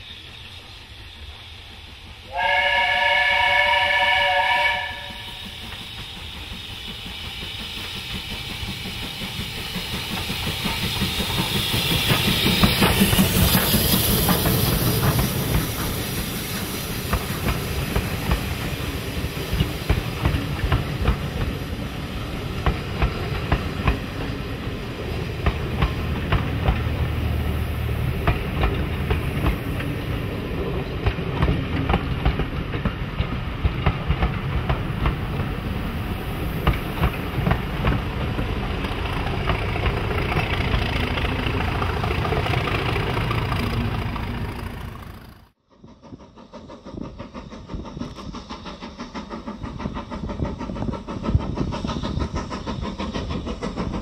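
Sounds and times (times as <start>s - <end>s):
train passing: 0.0s - 54.0s
steam train whistle: 2.2s - 5.7s.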